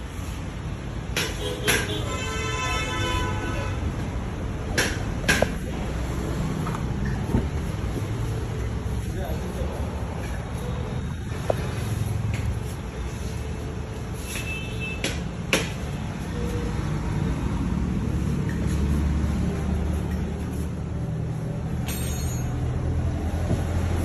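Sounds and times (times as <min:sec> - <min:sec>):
motor vehicles rumbling: 0:00.0 - 0:24.0
sharp knocks: 0:01.1 - 0:02.1, 0:04.7 - 0:05.8, 0:15.0 - 0:15.9.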